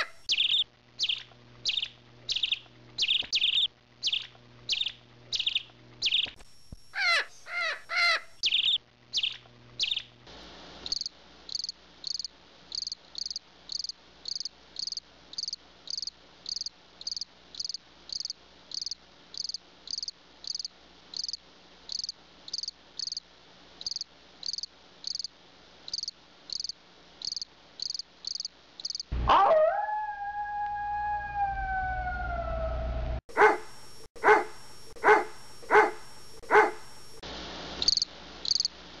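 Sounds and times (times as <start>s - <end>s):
bird chirps: 0.0s - 6.4s, 7.0s - 10.1s
crickets chirping: 10.8s - 23.2s, 23.8s - 25.3s, 25.9s - 29.1s, 33.3s - 37.2s, 37.8s - 38.8s
long howl sliding down: 29.2s - 33.2s.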